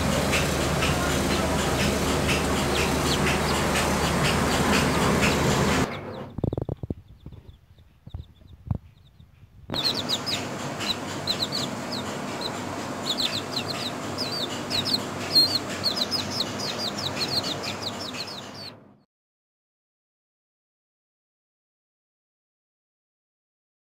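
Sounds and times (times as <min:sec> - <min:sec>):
chicks peeping: 0:00.0 - 0:18.8.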